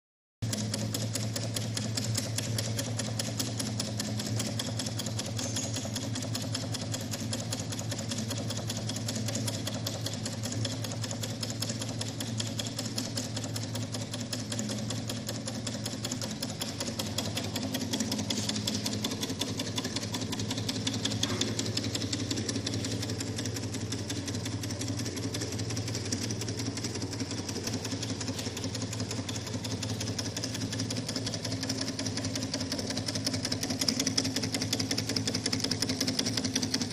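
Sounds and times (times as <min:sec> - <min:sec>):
engine mechanical clatter: 0:00.4 - 0:36.9
steady low hum: 0:12.6 - 0:30.8.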